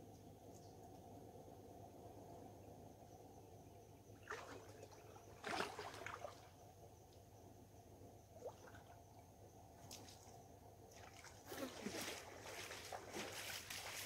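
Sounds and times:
faint splashes of river water: 0:04.0 - 0:07.3, 0:08.3 - 0:14.0.

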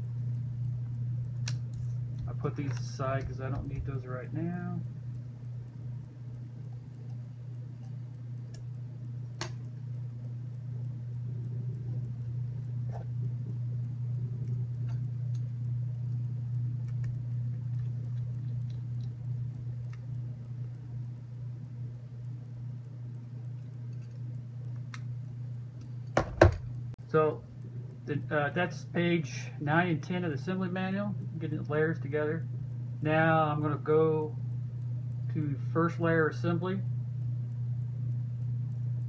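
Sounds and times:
low hum: 0:00.0 - 0:39.0.

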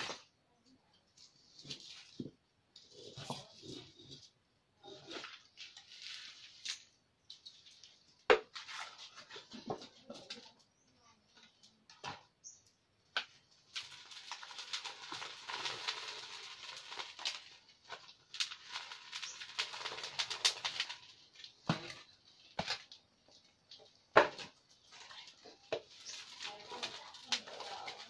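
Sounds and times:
wood fire: 0:00.0 - 0:28.0
paper and plastic bag crackling: 0:13.6 - 0:23.0, 0:24.8 - 0:28.0.

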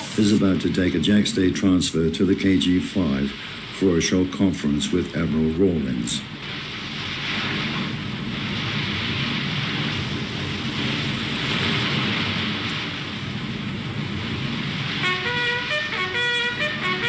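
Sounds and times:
wind and sea rushing: 0:06.3 - 0:15.8
stepped pitched tones: 0:12.4 - 0:17.0.

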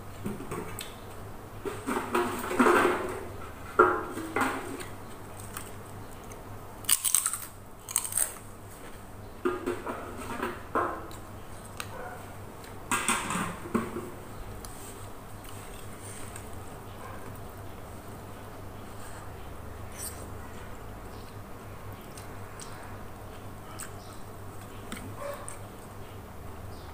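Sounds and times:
chewing and crunching: 0:05.3 - 0:08.5, 0:20.0 - 0:26.2.

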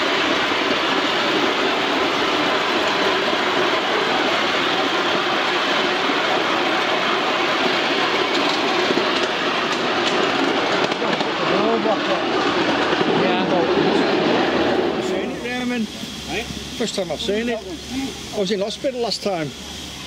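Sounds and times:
steam hissing: 0:00.0 - 0:20.0.

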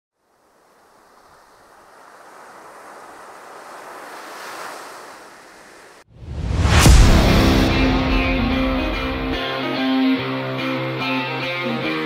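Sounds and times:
surf washing over sand: 0:00.2 - 0:09.4.

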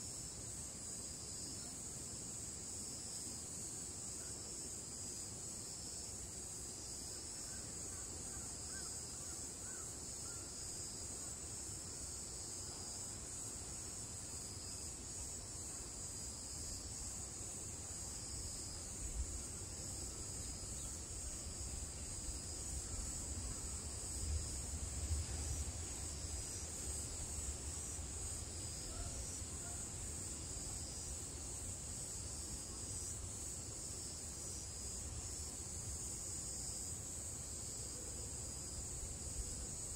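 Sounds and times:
cicadas droning: 0:00.0 - 0:39.9.

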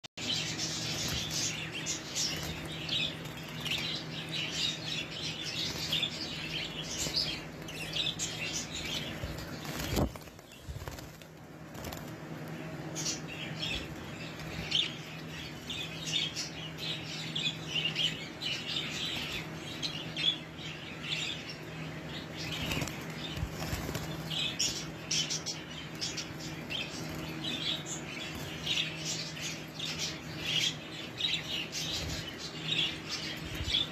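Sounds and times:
steady low hum: 0:00.2 - 0:33.9
wings flapping: 0:00.5 - 0:14.9, 0:22.4 - 0:25.4.

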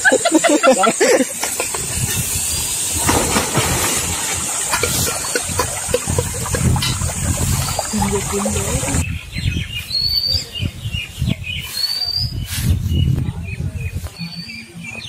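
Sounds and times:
birds chirping: 0:00.0 - 0:15.0
low uneven rumble: 0:01.6 - 0:09.0
stream rushing over rocks: 0:02.8 - 0:09.0.

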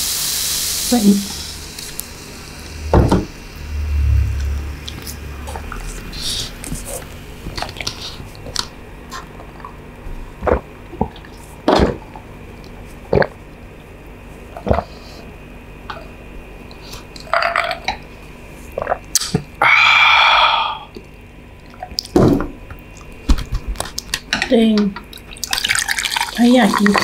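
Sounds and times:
loud rushing sound: 0:02.3 - 0:05.5.

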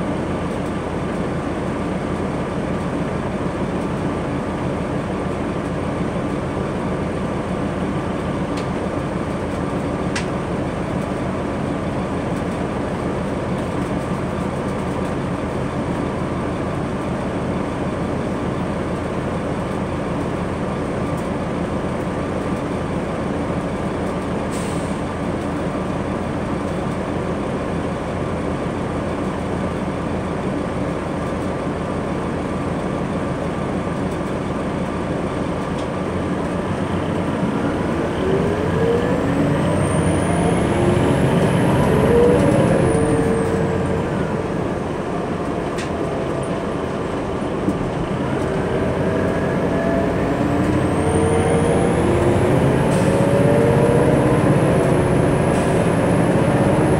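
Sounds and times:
bus diesel engine running: 0:00.0 - 0:56.9
road noise: 0:00.0 - 0:56.9
drivetrain whine rising in pitch: 0:36.8 - 0:56.9.

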